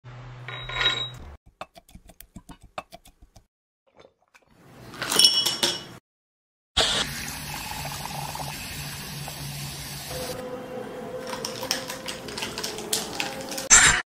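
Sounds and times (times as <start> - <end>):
glass ringing: 0.5 - 1.2.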